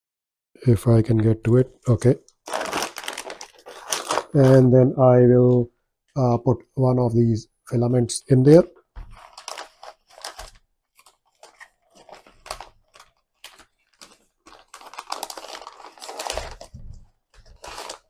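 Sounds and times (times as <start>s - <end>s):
plastic bag crinkling: 2.4s - 4.7s, 9.1s - 18.0s.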